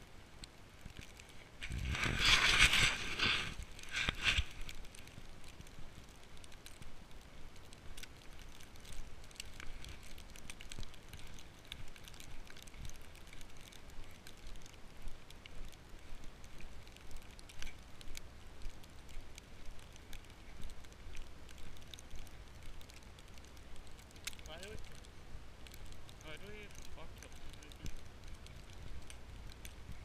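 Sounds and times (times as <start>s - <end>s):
footsteps crunching in snow: 1.3s - 7.0s.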